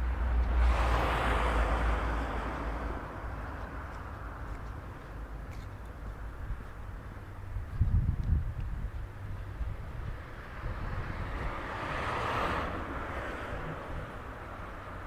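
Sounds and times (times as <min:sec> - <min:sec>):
wind rumbling on microphone: 0:00.0 - 0:15.0
vehicle passing by: 0:00.3 - 0:04.4, 0:10.3 - 0:15.0.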